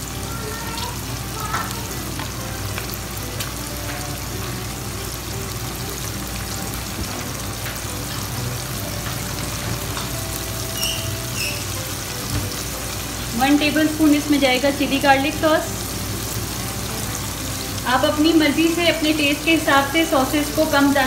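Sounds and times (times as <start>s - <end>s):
vegetables sizzling in oil: 0.0s - 21.0s.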